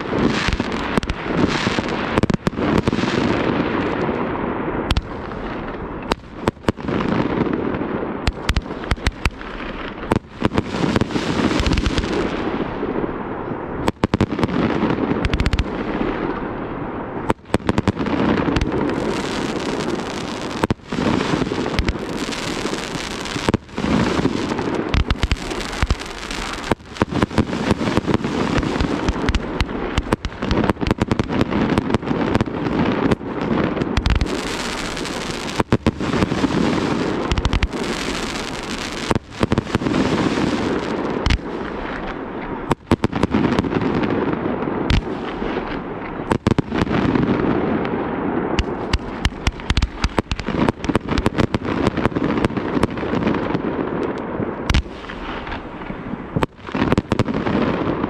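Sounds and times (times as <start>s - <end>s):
fireworks crackling and banging: 0.0s - 58.0s.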